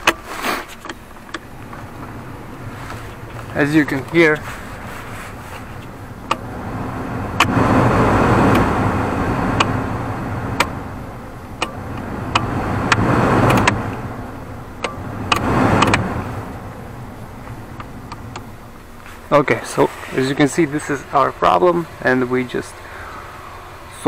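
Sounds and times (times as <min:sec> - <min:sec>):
heater blower fan blowing: 0:00.0 - 0:24.0
fan-speed knob clicks: 0:05.7 - 0:06.5, 0:07.3 - 0:07.6, 0:08.4 - 0:08.8, 0:09.5 - 0:09.9, 0:10.5 - 0:10.8, 0:11.6 - 0:14.1, 0:14.8 - 0:16.8.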